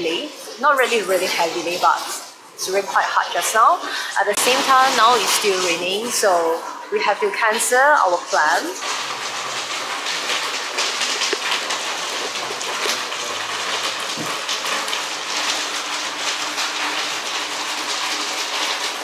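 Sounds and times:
heavy rain falling: 7.6s - 19.0s.

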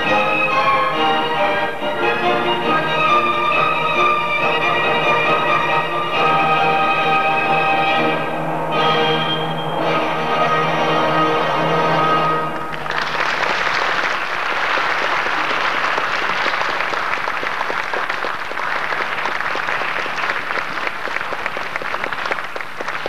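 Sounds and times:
audience applauding: 12.5s - 23.0s.

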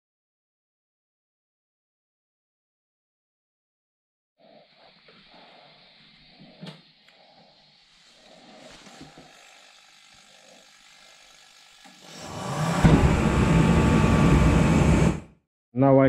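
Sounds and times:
shop heater fan and burner: 7.8s - 15.2s.

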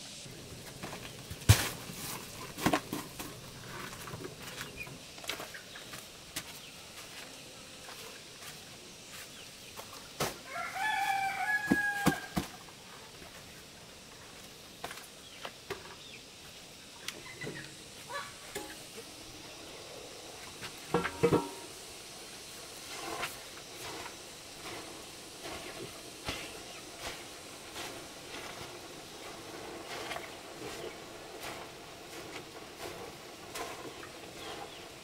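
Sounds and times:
rooster crowing: 10.4s - 12.6s.

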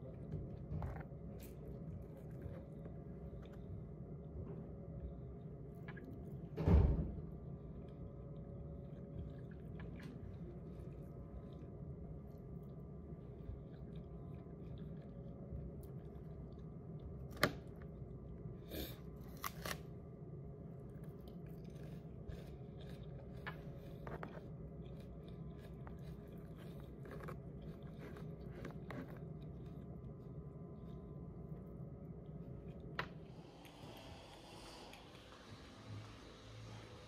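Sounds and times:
steady low hum: 0.0s - 37.0s
person chewing: 20.8s - 31.6s.

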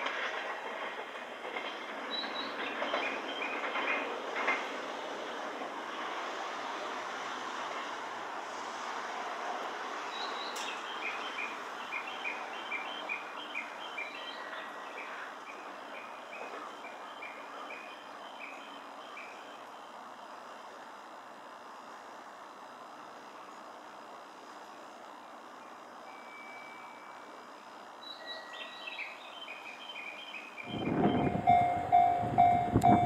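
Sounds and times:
passing train running noise: 0.0s - 33.0s
bird chirping: 28.0s - 33.0s.

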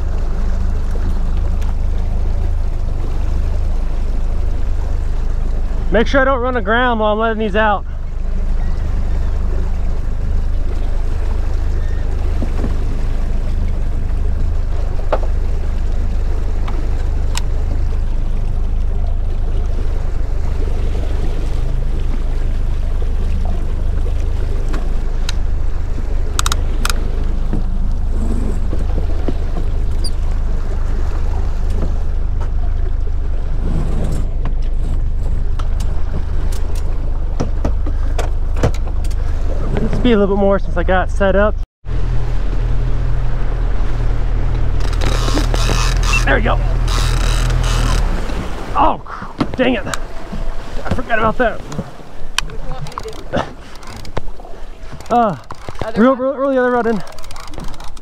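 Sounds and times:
outboard motor droning: 0.0s - 58.0s
water rushing past hull: 0.0s - 58.0s
sharp clicks: 26.3s - 27.0s, 57.1s - 58.0s.

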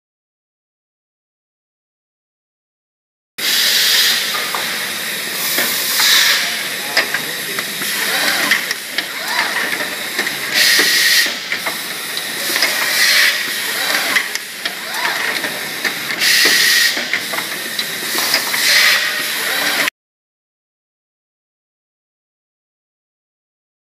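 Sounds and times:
compressed air hiss: 3.4s - 8.9s, 9.9s - 14.6s, 15.6s - 19.6s
whines of moving parts: 3.4s - 19.9s.

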